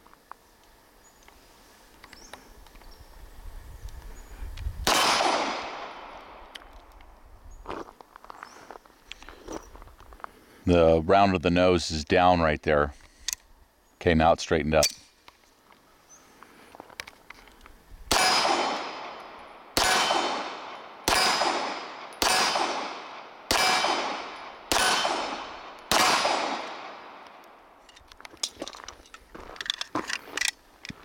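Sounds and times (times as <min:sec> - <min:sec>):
pistol shots: 0:04.8 - 0:06.4, 0:18.1 - 0:27.6
metallic clicks of pistol handling: 0:13.0 - 0:13.5, 0:27.2 - 0:31.0.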